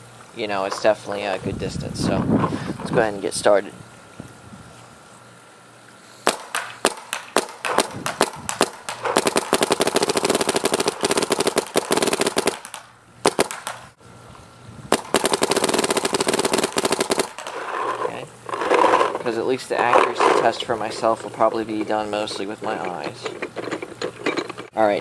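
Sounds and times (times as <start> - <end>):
paintball marker firing: 6.3 - 13.9, 14.9 - 17.6.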